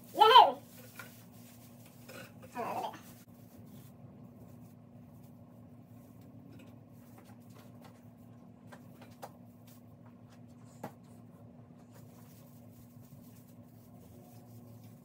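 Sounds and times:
rustling of plastic branches: 0:00.0 - 0:08.9
steady low hum: 0:00.0 - 0:15.0.

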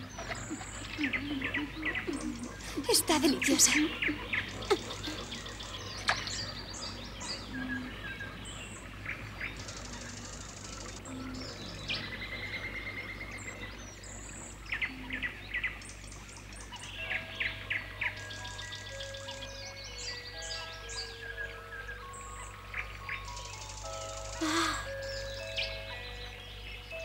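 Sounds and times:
steady low hum: 0:00.0 - 0:06.0
birds chirping and trilling: 0:00.0 - 0:27.0.

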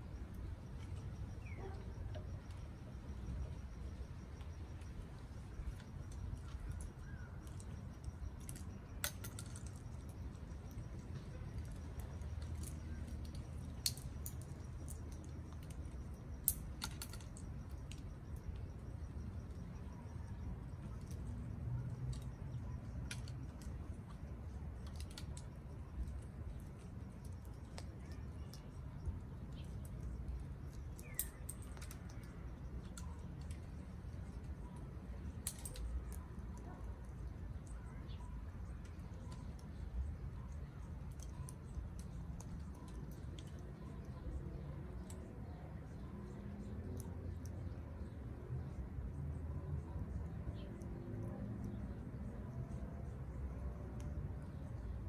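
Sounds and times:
parrots cracking nut shells: 0:12.4 - 0:15.8.

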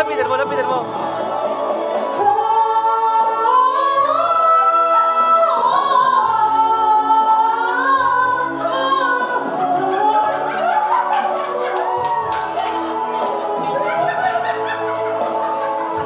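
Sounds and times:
backing track: 0:00.0 - 0:16.0.

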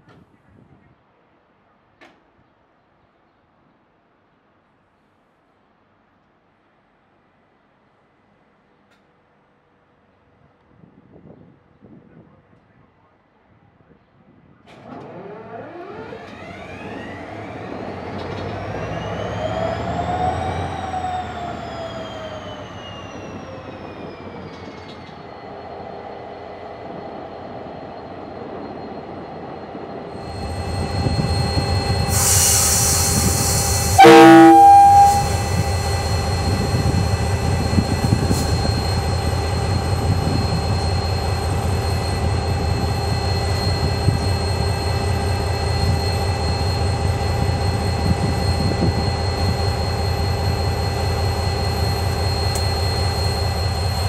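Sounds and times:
diesel locomotive engine revving: 0:14.8 - 0:23.8, 0:31.8 - 0:54.0
train horn blast: 0:34.0 - 0:35.7
rising whine: 0:34.0 - 0:36.4.

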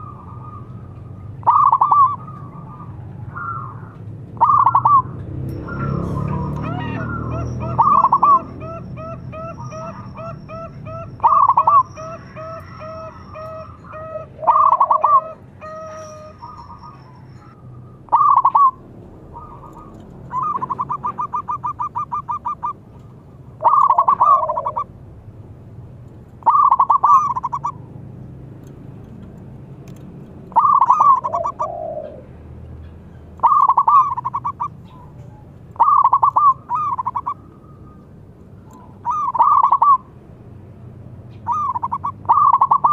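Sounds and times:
dove cooing: 0:00.0 - 0:05.1, 0:05.7 - 0:22.9, 0:23.6 - 0:24.9, 0:26.4 - 0:27.9, 0:30.5 - 0:32.5, 0:33.4 - 0:38.0, 0:38.6 - 0:40.1, 0:41.4 - 0:42.9
faint rapid bird calls: 0:30.5 - 0:40.1.

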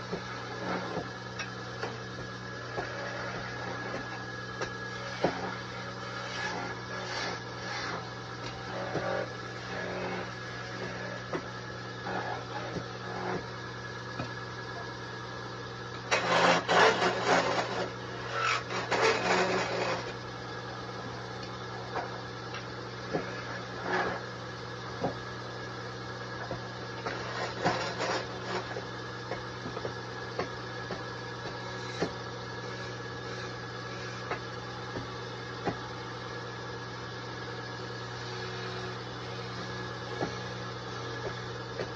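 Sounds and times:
turning tool scraping wood: 0:00.0 - 0:13.6, 0:15.9 - 0:20.3, 0:21.8 - 0:24.4, 0:26.4 - 0:35.8
lathe motor hum: 0:00.0 - 0:41.9.

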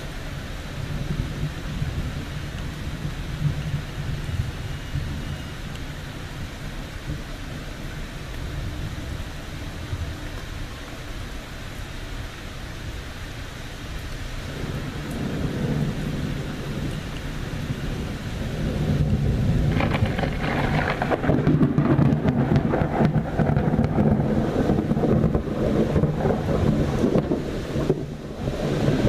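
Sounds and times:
rain falling: 0:00.0 - 0:29.0
rolling thunder: 0:14.5 - 0:29.0.

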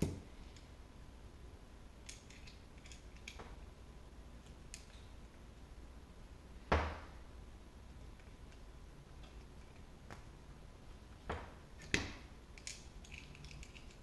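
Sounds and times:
faint clicks of small metal parts: 0:02.0 - 0:03.5, 0:04.4 - 0:05.1, 0:12.6 - 0:14.0.

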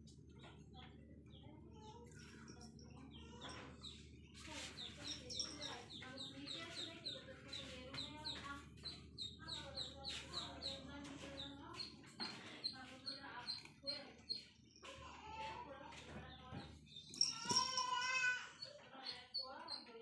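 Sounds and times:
birds chirping: 0:00.0 - 0:20.0.

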